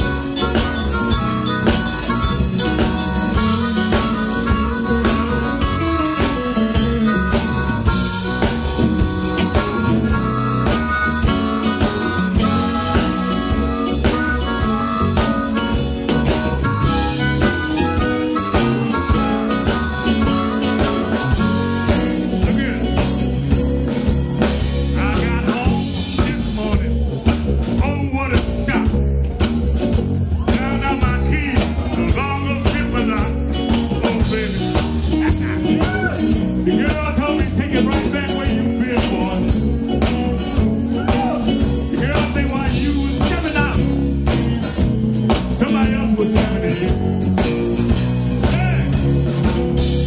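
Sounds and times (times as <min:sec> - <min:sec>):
bass guitar: 0:00.0 - 0:50.0
drum kit steady beat: 0:00.0 - 0:50.0
lead electric guitar bending notes: 0:00.0 - 0:50.0.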